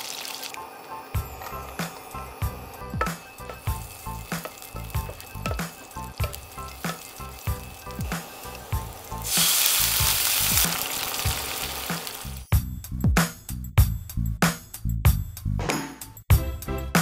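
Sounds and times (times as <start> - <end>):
garlic sizzling in hot oil: 0.0 - 12.5
wine hissing in hot pan: 0.0 - 12.5
background music with steady beat: 0.6 - 17.0
wooden spatula stirring: 2.8 - 10.7.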